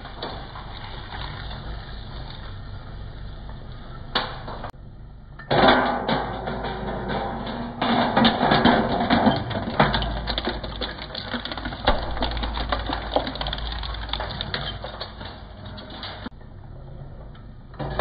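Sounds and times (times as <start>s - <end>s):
metal crunching in shredder: 7.4s - 16.3s.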